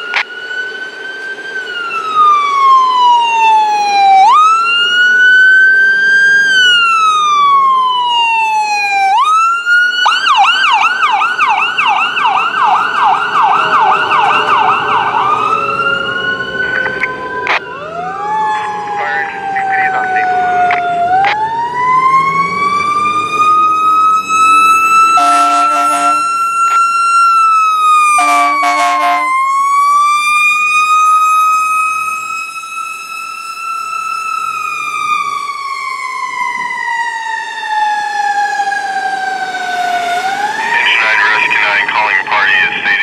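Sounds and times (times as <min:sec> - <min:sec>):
fire engine siren wailing: 0:00.0 - 0:43.0
horn blasts: 0:25.2 - 0:26.4, 0:28.2 - 0:29.4.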